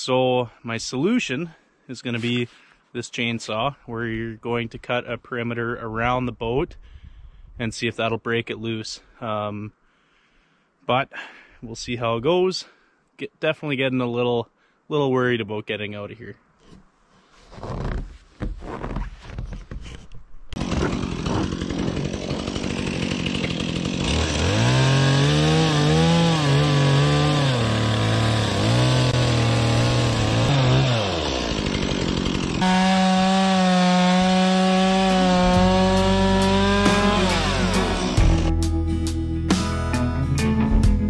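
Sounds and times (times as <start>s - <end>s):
chainsaw cutting ice: 20.6s - 38.5s.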